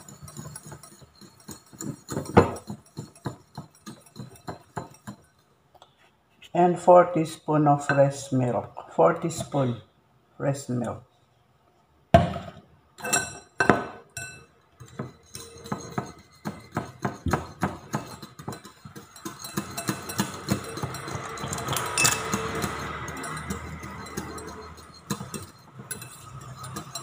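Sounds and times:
whisk clinking against bowl: 0:00.0 - 0:05.5, 0:13.0 - 0:27.0.

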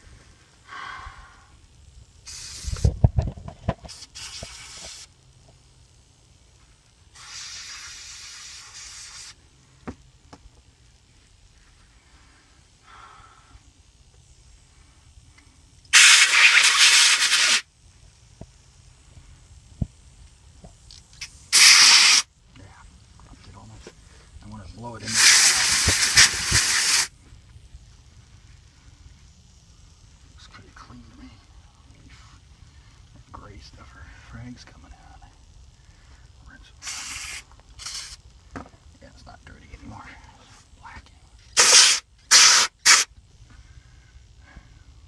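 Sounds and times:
aerosol spray hissing: 0:02.2 - 0:03.0, 0:03.8 - 0:05.3, 0:07.1 - 0:09.8, 0:15.9 - 0:17.7, 0:21.2 - 0:22.3, 0:24.5 - 0:27.2, 0:36.8 - 0:38.4, 0:40.5 - 0:43.2.

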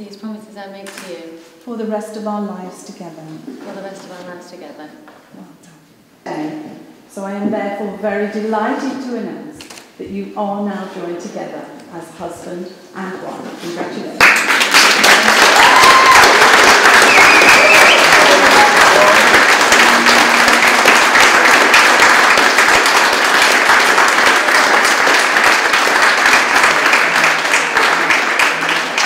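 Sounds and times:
people applauding: 0:14.2 - 0:29.0.

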